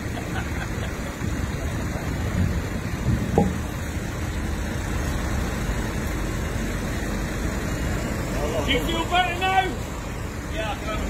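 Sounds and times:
heavy vehicle engine rumbling: 0.0s - 11.0s
loud knock: 3.1s - 3.7s.

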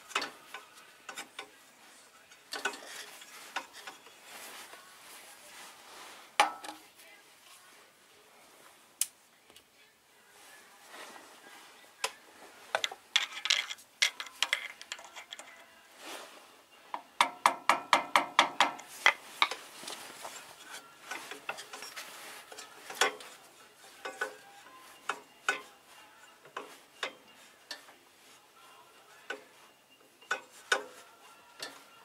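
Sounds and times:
metal tools clinking: 2.5s - 4.2s, 12.8s - 15.6s, 19.0s - 27.9s.

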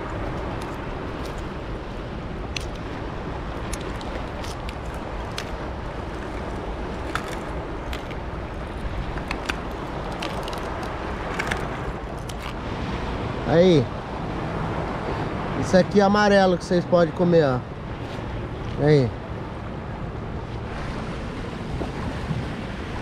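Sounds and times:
wind: 0.0s - 23.0s
knife scraping a shell: 3.6s - 12.6s.

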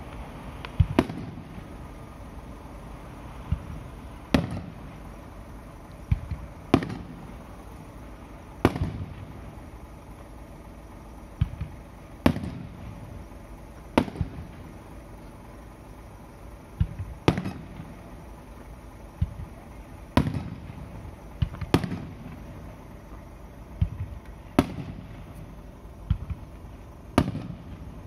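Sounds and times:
fireworks bursting with echo: 0.0s - 28.0s.

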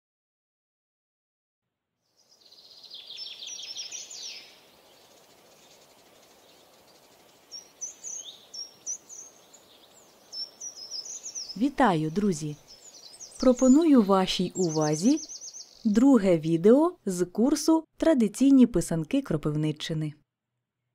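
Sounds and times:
faint steady hiss: 2.1s - 15.9s
songbirds singing: 2.1s - 16.9s.

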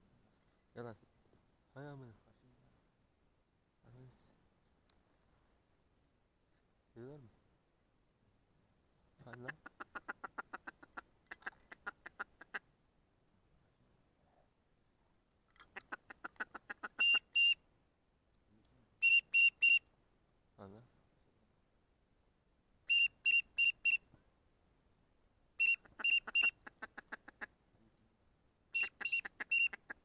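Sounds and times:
ducks fast ticking calls: 9.2s - 12.7s, 15.6s - 17.6s, 19.0s - 19.8s, 22.9s - 24.0s, 25.6s - 27.6s, 28.7s - 30.0s
ducks whistling calls: 15.8s - 17.6s, 19.0s - 19.8s, 22.9s - 24.0s, 25.6s - 27.5s, 28.8s - 30.0s.

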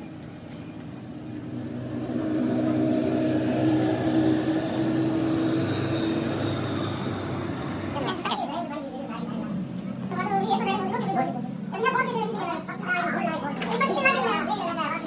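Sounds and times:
vehicle engine passing: 0.9s - 11.6s.

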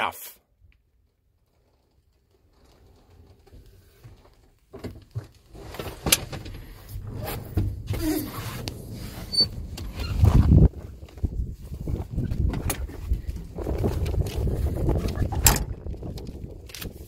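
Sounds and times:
wind rumble on microphone: 5.5s - 17.0s
cab door clicks and knocks: 15.0s - 16.9s.

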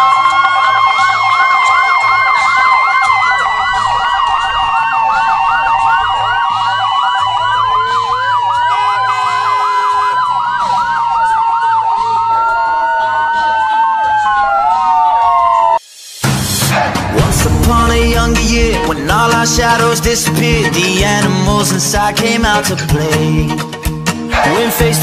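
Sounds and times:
police sirens yelping: 0.0s - 15.8s
siren wail: 0.0s - 15.8s, 16.8s - 19.3s.

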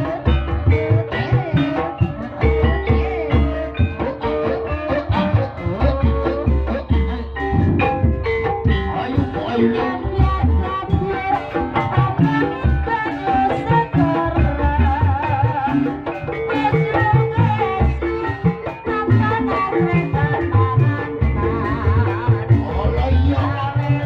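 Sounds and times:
drum strokes: 0.0s - 13.0s
metallophone melody: 0.0s - 14.3s.

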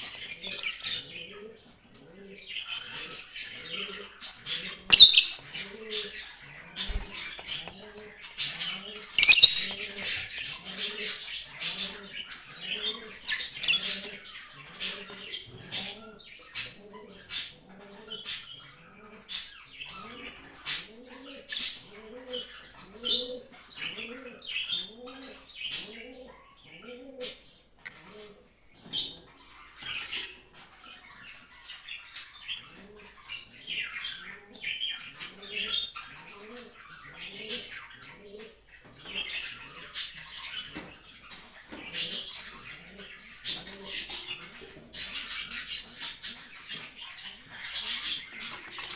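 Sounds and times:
lovebirds chirping: 2.3s - 18.6s.

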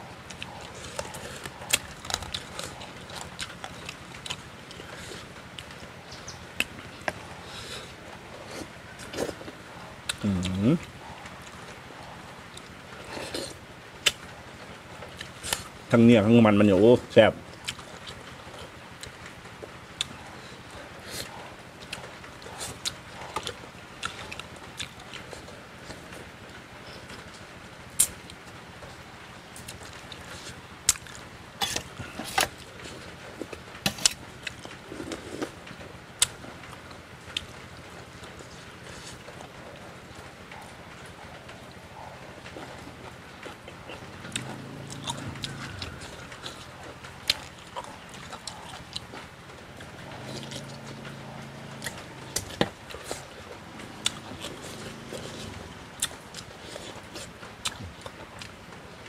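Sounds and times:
low steady hum: 0.0s - 59.0s
person chewing: 0.2s - 14.2s, 20.0s - 26.1s, 29.6s - 35.6s, 38.2s - 58.6s
person chewing and lip-smacking: 40.5s - 58.6s.

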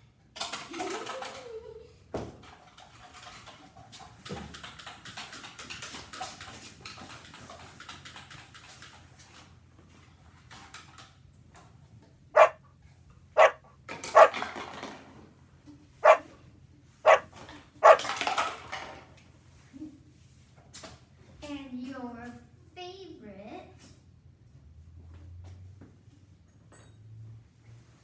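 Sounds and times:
dog barking: 12.4s - 12.6s, 13.4s - 14.4s, 16.0s - 16.3s, 17.0s - 18.1s.

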